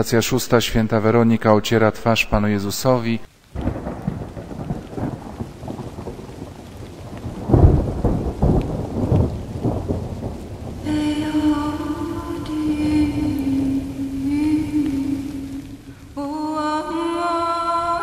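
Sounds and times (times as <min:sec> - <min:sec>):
rain falling: 0:00.0 - 0:18.0
thunder rolling: 0:03.5 - 0:17.0.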